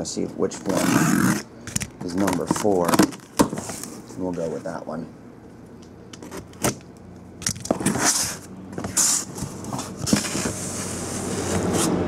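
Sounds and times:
cardboard crinkling and rustling: 0:02.0 - 0:04.8, 0:07.6 - 0:12.0
cardboard box being opened: 0:07.7 - 0:12.0.

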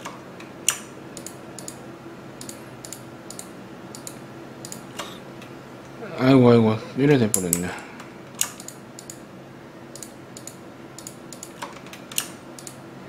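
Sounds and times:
mouse and keyboard clicking: 0:00.7 - 0:01.8, 0:02.4 - 0:05.2, 0:08.4 - 0:09.2, 0:09.9 - 0:12.8.

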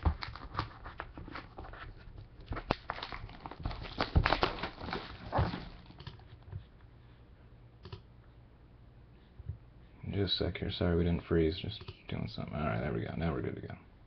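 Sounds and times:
plastic wrap crinkling: 0:02.5 - 0:06.3.

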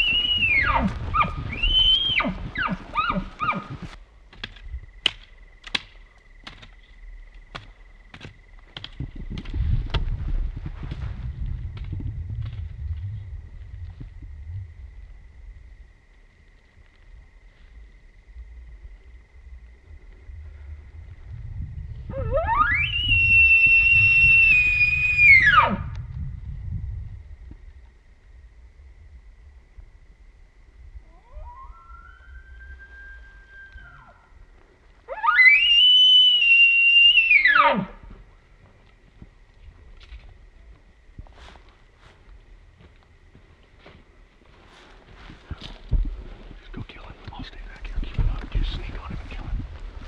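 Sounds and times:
elk bugling: 0:00.0 - 0:04.0, 0:22.0 - 0:26.0, 0:31.0 - 0:38.3.

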